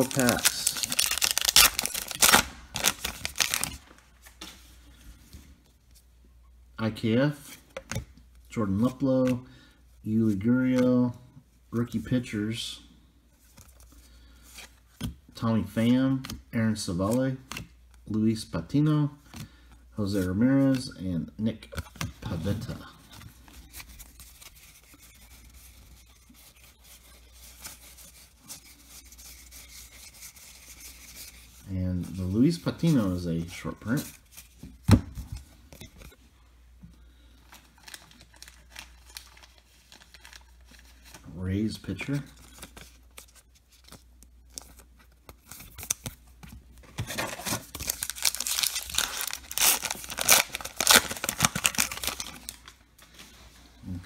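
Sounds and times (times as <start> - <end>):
wrapper crinkling and tearing: 0.0 - 3.9, 37.7 - 41.2, 47.1 - 52.8
cards rubbing together: 23.5 - 33.2.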